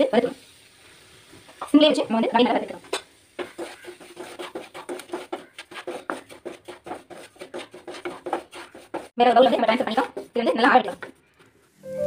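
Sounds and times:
spatula scraping in a pan: 0:02.3 - 0:12.0.

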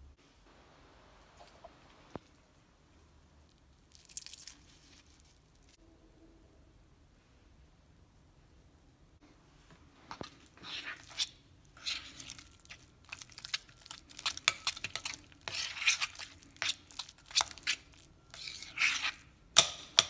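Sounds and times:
spoon scraping and squishing butter: 0:01.4 - 0:05.8, 0:10.0 - 0:20.0.

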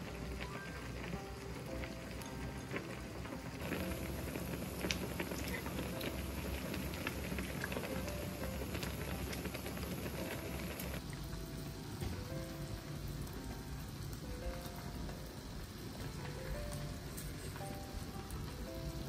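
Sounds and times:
broth bubbling: 0:00.0 - 0:16.7.

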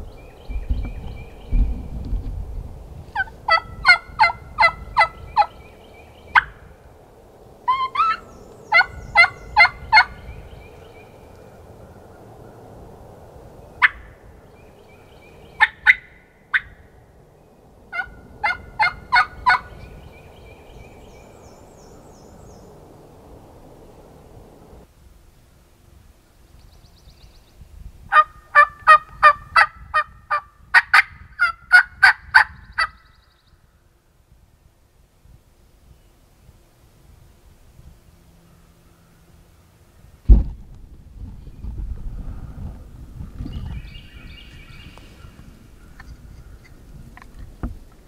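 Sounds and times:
turkey call sharp clucks: 0:03.2 - 0:05.5, 0:06.3 - 0:06.6, 0:07.7 - 0:10.1, 0:15.6 - 0:16.7, 0:17.9 - 0:19.7, 0:28.1 - 0:33.0
turkey call yelps: 0:03.2 - 0:05.6, 0:06.3 - 0:06.6, 0:07.7 - 0:10.2, 0:13.8 - 0:14.0, 0:15.6 - 0:16.8, 0:17.9 - 0:19.7, 0:28.1 - 0:33.0.

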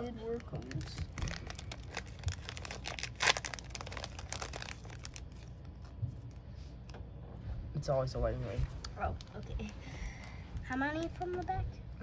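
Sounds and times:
foil wrapper crinkling and tearing: 0:00.0 - 0:06.4.

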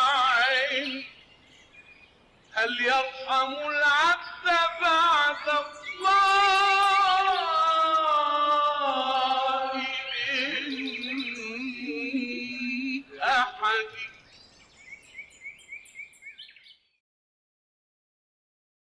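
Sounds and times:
bird-like chirps: 0:00.2 - 0:08.4, 0:09.2 - 0:17.0
person singing: 0:02.6 - 0:14.1.

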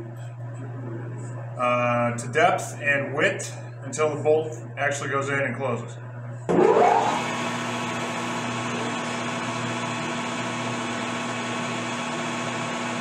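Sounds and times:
metal lathe humming: 0:06.5 - 0:13.0.

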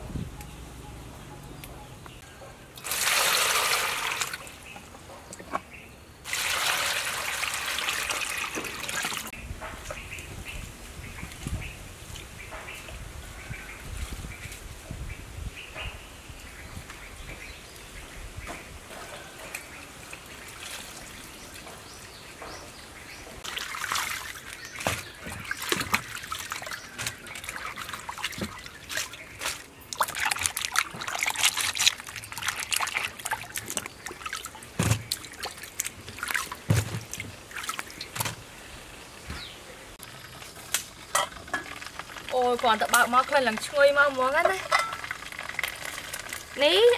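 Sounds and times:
hands washing leaves in water: 0:02.8 - 0:04.8, 0:06.3 - 0:09.3, 0:19.5 - 0:22.4, 0:23.4 - 0:38.5, 0:40.0 - 0:46.9.

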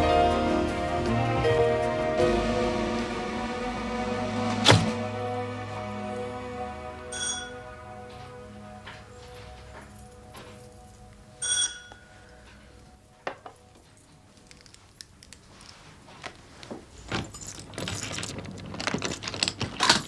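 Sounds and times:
soft music: 0:00.0 - 0:16.1
short bright bell ring: 0:07.1 - 0:07.6
key rattling in door lock: 0:17.1 - 0:20.0.

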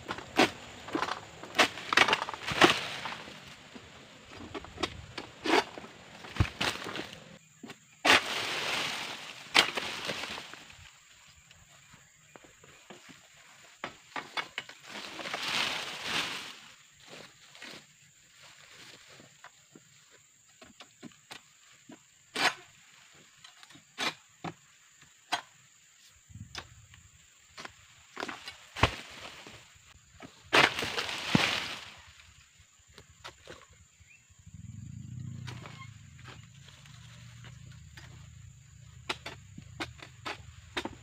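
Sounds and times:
palm leaves rustling: 0:00.0 - 0:07.4, 0:08.0 - 0:11.8, 0:12.9 - 0:19.5, 0:27.6 - 0:32.7
frond stalks cracking: 0:01.7 - 0:03.6.

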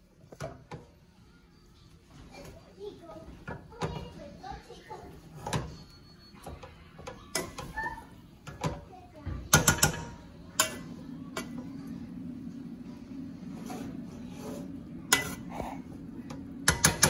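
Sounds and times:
steady low hum: 0:08.0 - 0:17.0
spatula scraping a skillet: 0:13.4 - 0:16.0.

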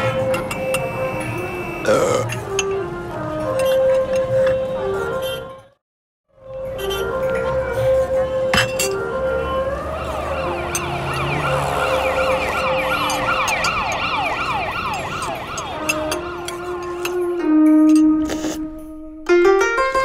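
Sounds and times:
held music notes: 0:00.0 - 0:05.8, 0:06.4 - 0:20.0
rapid yelping siren: 0:09.0 - 0:16.9.

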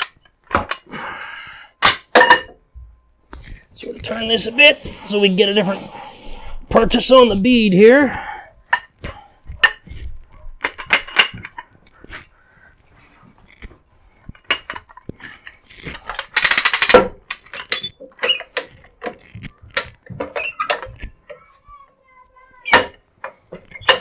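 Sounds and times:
rattling clicks: 0:15.8 - 0:21.3
jack clanking and clicking: 0:15.9 - 0:21.1.

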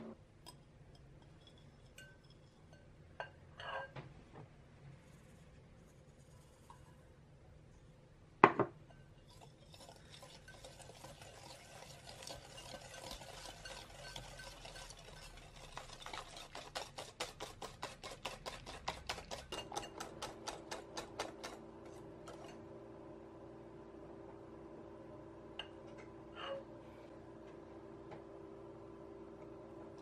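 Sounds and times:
whisk scraping glass bowl: 0:09.2 - 0:22.6.

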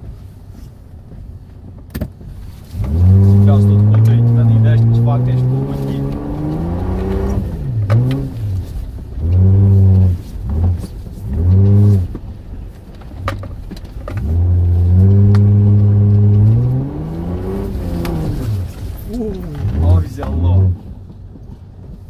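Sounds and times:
engine revving: 0:02.7 - 0:12.2, 0:14.1 - 0:20.8.

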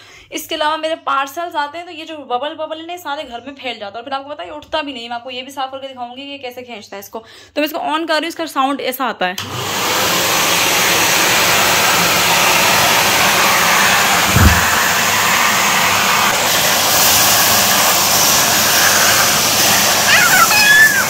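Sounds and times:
vacuum cleaner running: 0:09.4 - 0:21.0
low thump: 0:14.2 - 0:15.1.

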